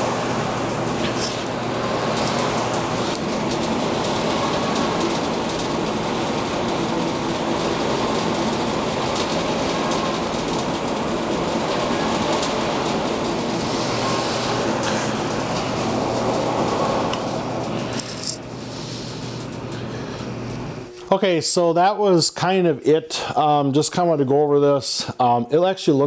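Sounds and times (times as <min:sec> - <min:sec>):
high-pitched whine: 0:00.0 - 0:18.4
blower air rush: 0:00.0 - 0:20.5.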